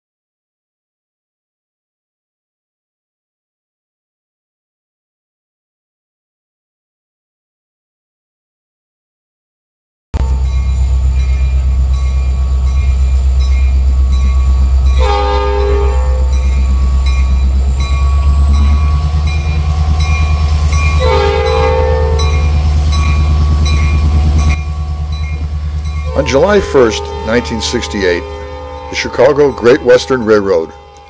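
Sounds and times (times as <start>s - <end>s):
diesel locomotive engine drone: 10.2s - 31.0s
regular rail clicks: 10.2s - 31.0s
train air horn blasts: 15.0s - 16.4s, 21.0s - 22.4s, 26.1s - 31.0s.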